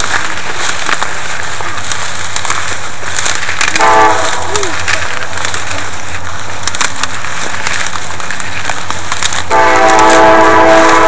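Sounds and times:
dry plants rustling: 0.0 - 11.0
loud horn blast: 3.8 - 4.5, 9.5 - 11.0.

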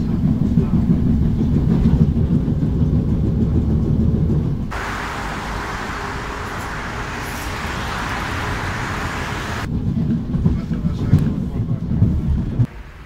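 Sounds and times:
train interior rumble: 0.0 - 13.0
road traffic hiss: 4.7 - 9.7, 12.7 - 13.0.

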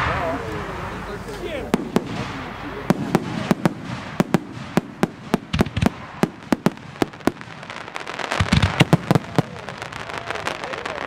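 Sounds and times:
fireworks bangs: 0.0 - 11.0.

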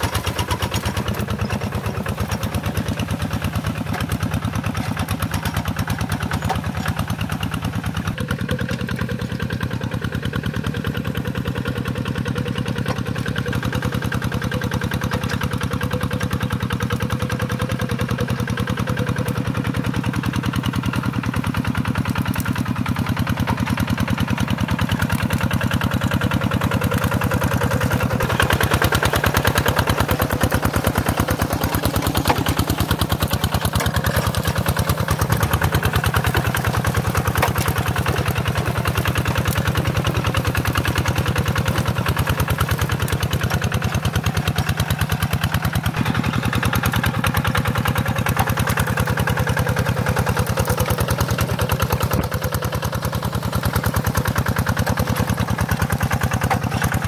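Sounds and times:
diesel engine thumping: 0.0 - 57.0.

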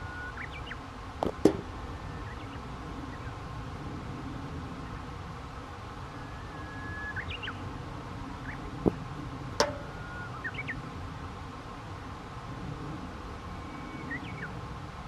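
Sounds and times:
sharp clack with ring: 9.6 - 10.0
birds chirping: 9.6 - 10.8.

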